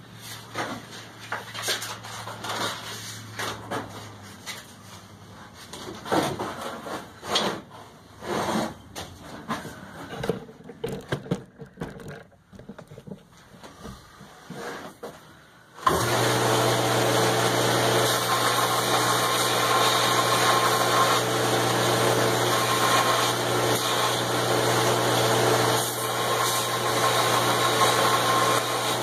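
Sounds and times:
knocks and clatter of handling: 5.6s - 7.7s, 8.9s - 15.2s.

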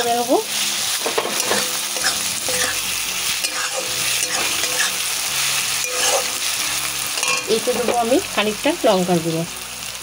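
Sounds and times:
food sizzling in hot oil: 0.0s - 10.0s
spatula scraping pan: 0.8s - 6.6s.

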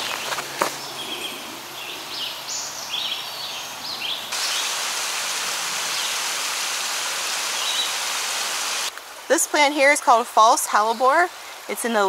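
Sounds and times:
songbird chirping: 0.0s - 4.8s, 7.3s - 8.2s
stream water rushing: 4.0s - 12.0s.

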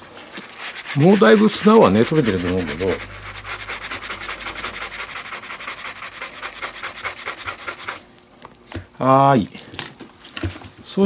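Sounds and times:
bristle brush scrubbing leather: 0.3s - 8.0s.

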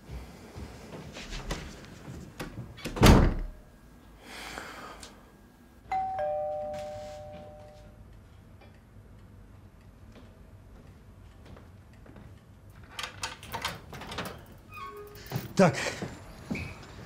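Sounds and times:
door slamming: 2.8s - 3.6s
two-note doorbell ringing: 5.9s - 8.0s.

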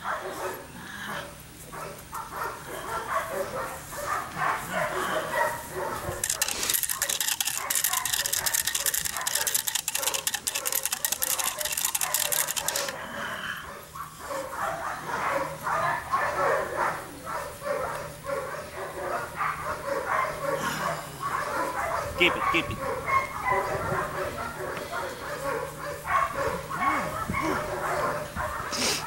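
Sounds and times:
crackly rustling hiss: 0.0s - 13.0s
puppy making small noises: 6.0s - 13.0s, 22.2s - 23.8s.

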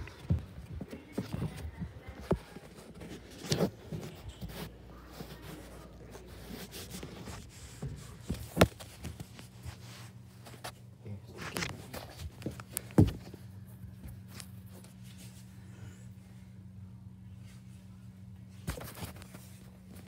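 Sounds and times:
footsteps: 0.0s - 10.7s
rustling of phone being carried: 0.0s - 15.5s.

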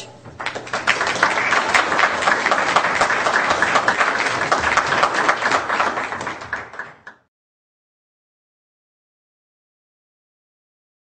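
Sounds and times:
audience applauding: 0.2s - 7.3s.

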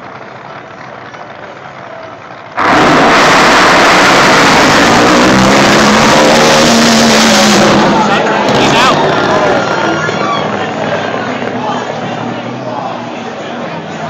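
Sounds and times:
boat engines at full throttle: 0.0s - 14.0s
crowd murmur: 0.0s - 14.0s.

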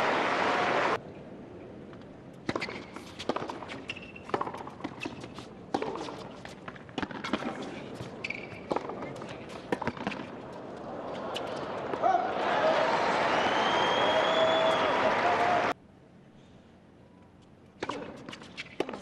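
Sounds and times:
racket striking tennis ball: 2.4s - 10.3s
tennis ball bouncing: 2.4s - 12.0s.

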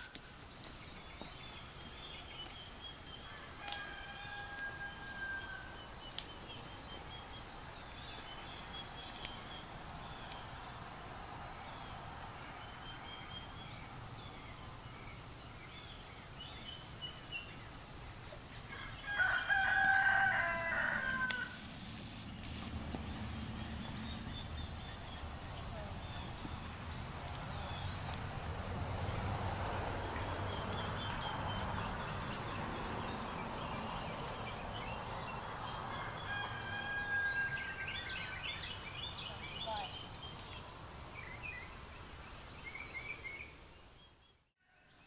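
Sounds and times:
rooster crowing: 3.2s - 5.9s, 18.7s - 21.6s, 35.3s - 38.6s.

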